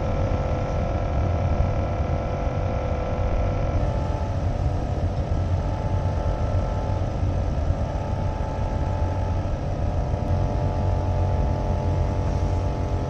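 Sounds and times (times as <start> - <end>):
vacuum pump humming: 0.0 - 13.0.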